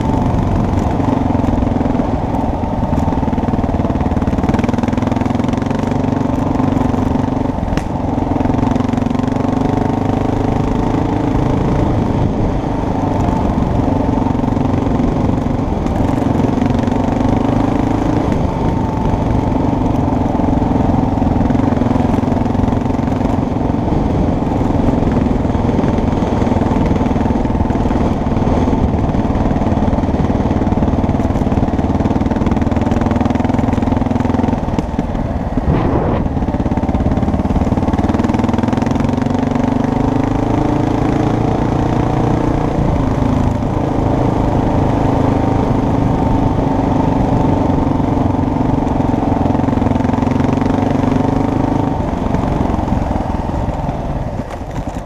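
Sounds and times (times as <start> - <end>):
off-road vehicle engine running: 0.0 - 55.0
wind and ground rumble: 0.0 - 55.0.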